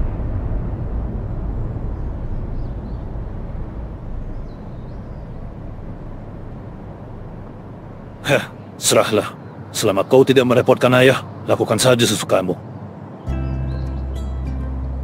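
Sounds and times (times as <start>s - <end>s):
low rumbling ambience: 0.0s - 9.9s, 12.6s - 15.0s.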